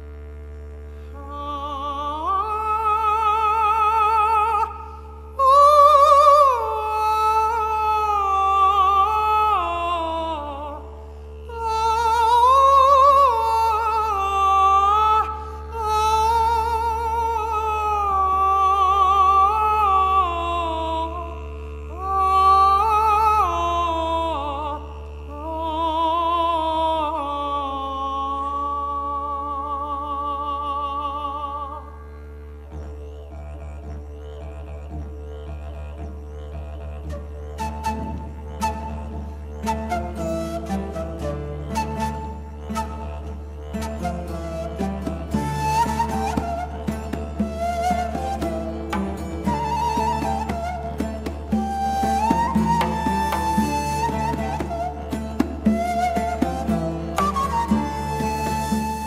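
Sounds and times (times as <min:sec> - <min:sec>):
didgeridoo drone: 0:00.0 - 0:26.5, 0:32.2 - 0:59.0
countertenor singing with vibrato: 0:35.5 - 0:59.0.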